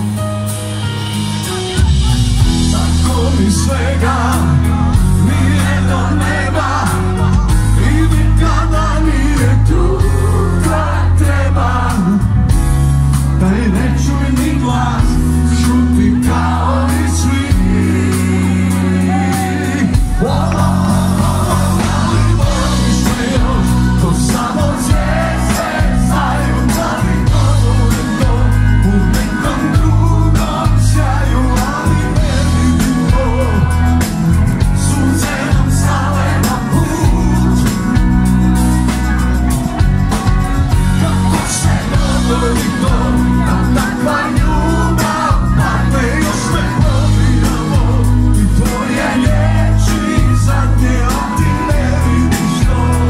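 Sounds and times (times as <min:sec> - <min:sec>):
live band music: 0:00.0 - 0:53.0
man singing: 0:01.4 - 0:53.0.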